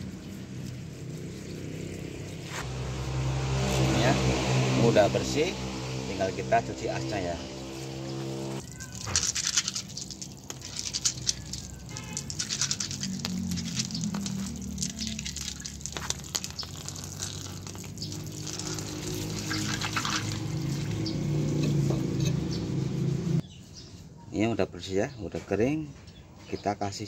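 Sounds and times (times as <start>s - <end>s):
low hum: 0.0s - 8.6s
water splashing on wet paving: 8.2s - 21.6s.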